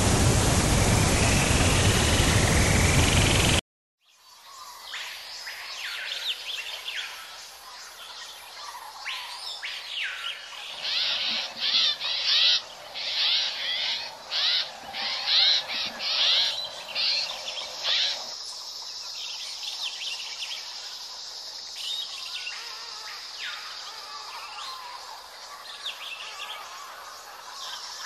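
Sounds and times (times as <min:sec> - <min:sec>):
faint bird chirps: 0:10.1 - 0:18.6
birds harsh repeated calls: 0:10.7 - 0:18.3
high insect buzz: 0:20.5 - 0:27.4.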